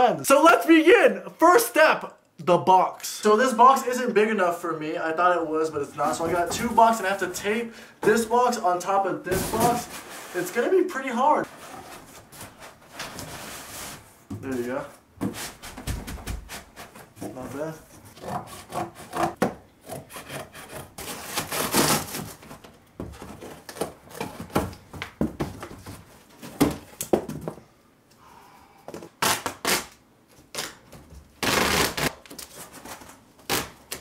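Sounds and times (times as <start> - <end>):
box cutter cutting cardboard: 18.1 - 22.5
packing tape pulled off roll: 21.0 - 22.4, 29.2 - 30.8, 31.4 - 34.0.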